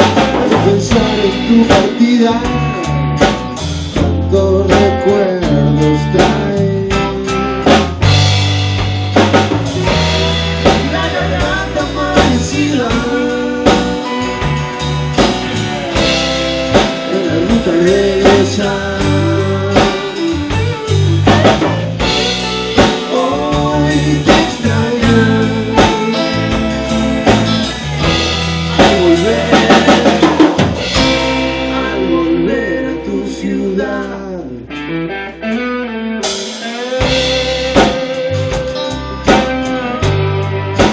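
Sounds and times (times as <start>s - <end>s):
drum kit beating: 0.0s - 34.2s, 36.2s - 40.9s
electric and acoustic guitars: 0.0s - 40.9s.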